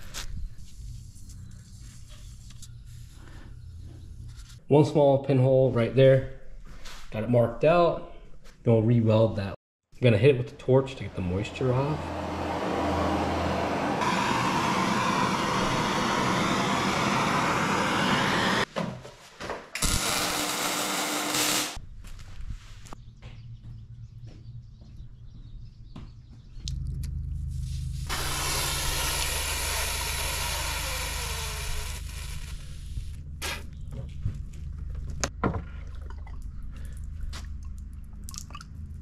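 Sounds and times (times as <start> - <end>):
low hum: 10.9 - 18.7, 26.4 - 39.0
gas torch hissing: 13.6 - 18.7, 19.8 - 21.8, 27.6 - 33.7
crackles: 19.8 - 23.0.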